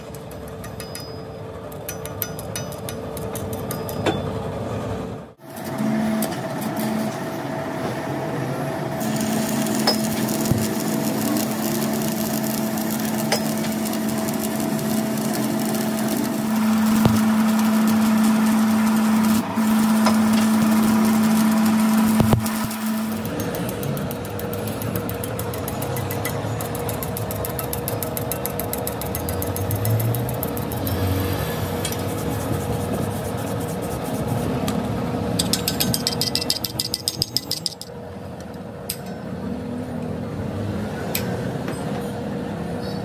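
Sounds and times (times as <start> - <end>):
steady hum: 0.0 - 39.2
welding arc sizzling: 8.9 - 34.7.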